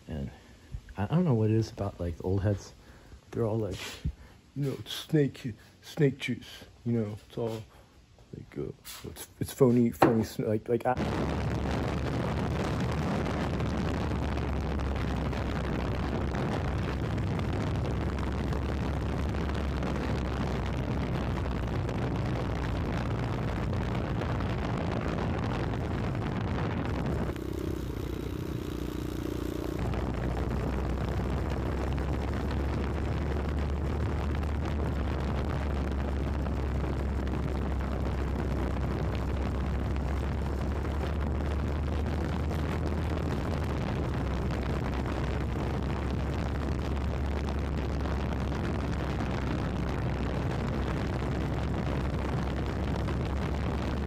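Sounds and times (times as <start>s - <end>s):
motorcycle riding: 11.6s - 54.0s.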